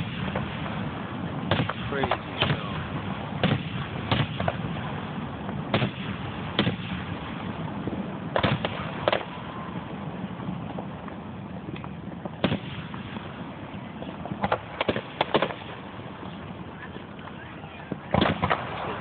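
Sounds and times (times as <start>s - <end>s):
fireworks bangs: 0.0s - 19.0s.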